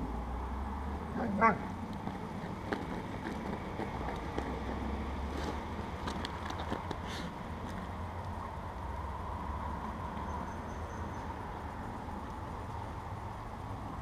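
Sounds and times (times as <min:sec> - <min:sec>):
dog barking: 0:01.2 - 0:01.6.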